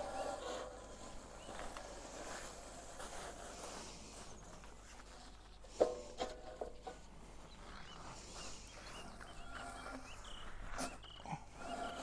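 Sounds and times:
small birds chirping: 0.0 - 2.4, 6.6 - 12.0.

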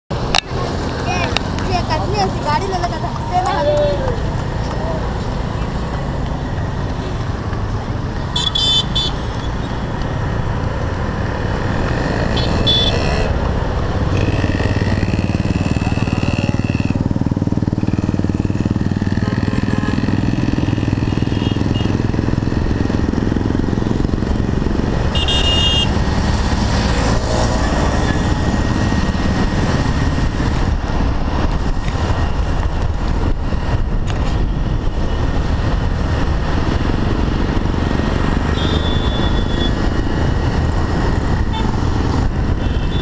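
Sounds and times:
vehicle horn toots: 8.4 - 9.2, 12.3 - 13.3, 21.2 - 21.9, 25.1 - 25.9, 38.6 - 39.7, 42.6 - 43.0
small motorbike engine running: 11.5 - 30.6
wind noise on microphone: 22.0 - 43.0.

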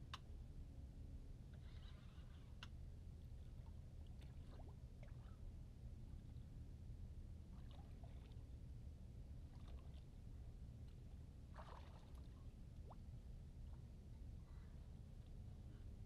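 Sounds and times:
faint low rumble: 0.0 - 16.0
water lapping at boat hull: 1.6 - 5.5, 7.4 - 8.7, 9.3 - 15.6.

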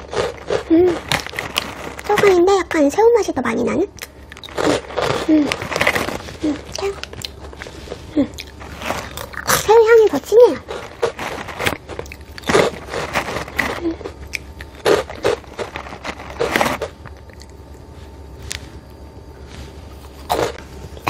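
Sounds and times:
crackers crunching: 0.0 - 21.0
chewing: 4.0 - 9.7, 10.6 - 18.7.

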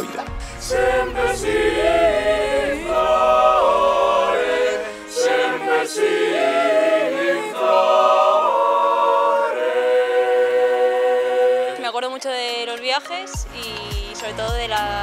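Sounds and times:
mixed choir singing a cappella: 0.0 - 12.0.

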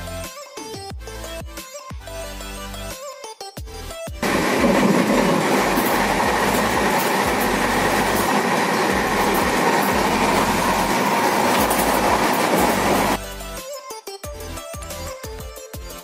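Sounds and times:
train wheels rumbling on track: 4.2 - 13.2.

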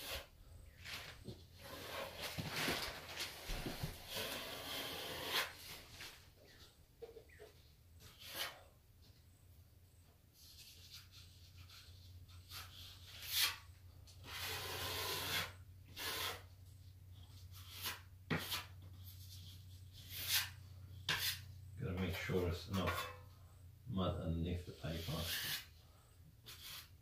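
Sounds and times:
scraper scraping along wet tape: 4.1 - 5.6, 14.2 - 16.5, 25.0 - 25.7.

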